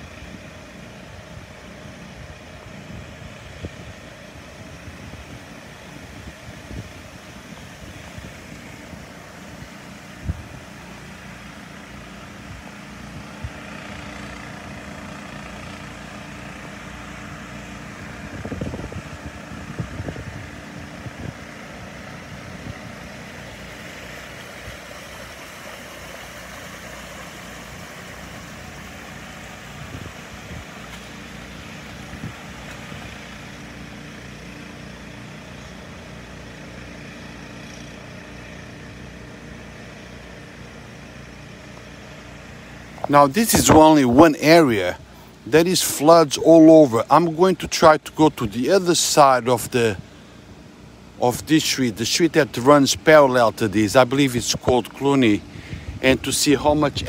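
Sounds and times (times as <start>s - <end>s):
engine idling: 0.0s - 57.0s
outdoor hiss: 20.5s - 57.0s.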